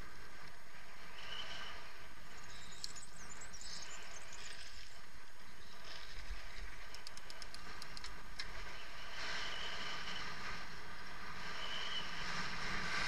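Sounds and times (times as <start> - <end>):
wind rushing over microphone: 0.0 - 13.0
light clicks: 6.8 - 8.6.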